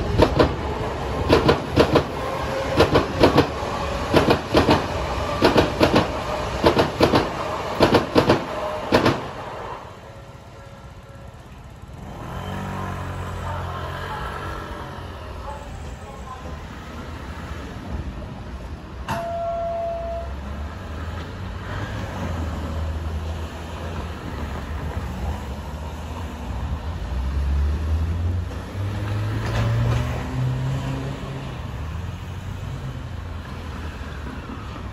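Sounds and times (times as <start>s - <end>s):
cars rumbling over crossing: 0.0s - 10.4s, 11.3s - 34.9s
short beep: 19.1s - 20.5s.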